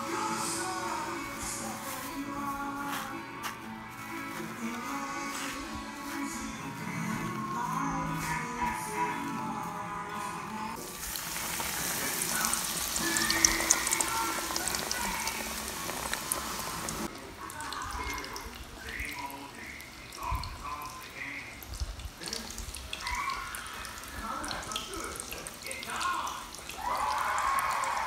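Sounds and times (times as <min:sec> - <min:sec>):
television voices: 0:00.0 - 0:28.0
deep-frying sizzle: 0:10.8 - 0:28.0.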